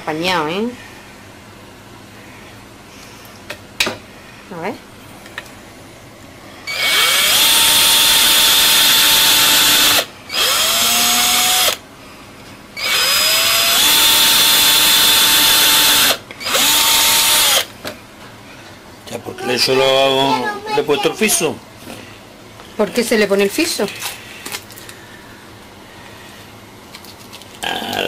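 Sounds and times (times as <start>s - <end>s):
electric drill whining: 6.7s - 11.8s, 12.8s - 17.7s.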